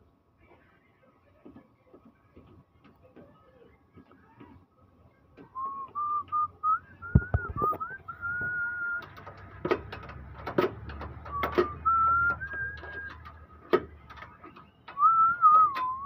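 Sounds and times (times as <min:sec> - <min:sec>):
person whistling a tune: 0:05.6 - 0:09.0, 0:11.3 - 0:13.2, 0:15.0 - 0:16.0
sharp clicks and knocks: 0:07.0 - 0:16.0.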